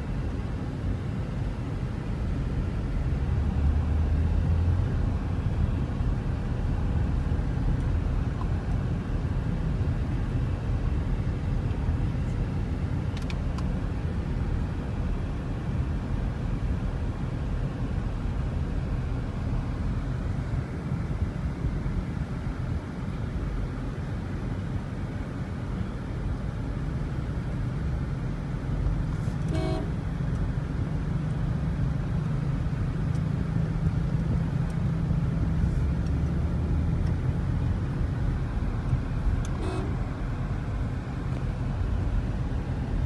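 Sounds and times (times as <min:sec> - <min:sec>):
car engine and road noise: 0:00.0 - 0:43.0
car horn toots: 0:29.5 - 0:30.0, 0:39.5 - 0:40.0.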